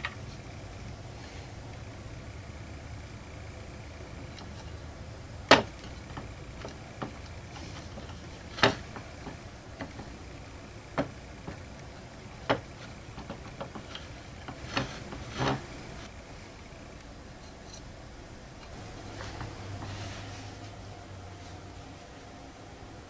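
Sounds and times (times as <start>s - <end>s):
faint steady hum: 0.0s - 23.0s
sharp knocks and clicks: 5.5s - 16.0s.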